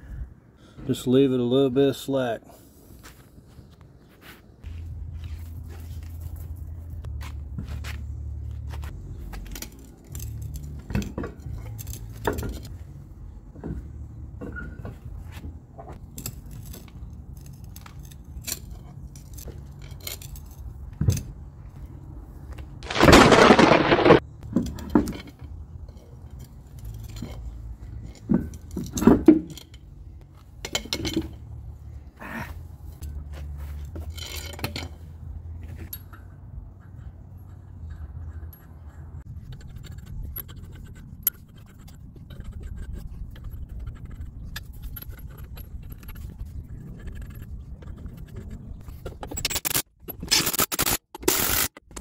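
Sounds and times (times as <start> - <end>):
pry bar scraping on concrete: 15.9 - 20.7, 37.5 - 52.0.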